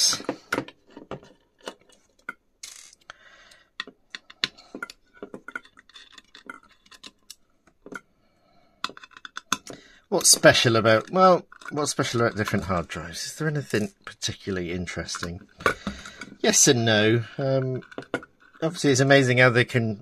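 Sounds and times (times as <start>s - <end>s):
small metal clicks of screws: 8.8s - 9.7s.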